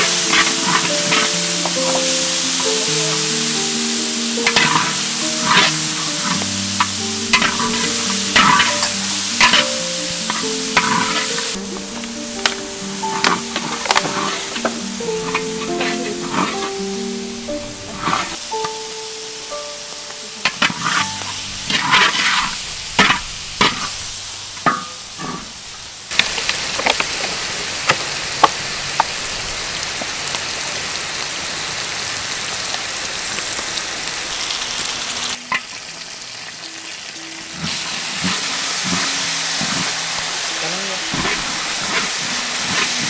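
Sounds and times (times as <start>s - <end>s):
spatula knocking and scraping wok: 0.0s - 16.8s, 17.7s - 18.8s, 20.4s - 25.6s, 38.2s - 40.0s, 41.1s - 43.0s
background music: 0.0s - 24.9s, 35.4s - 43.0s
food sizzling in wok: 0.0s - 43.0s.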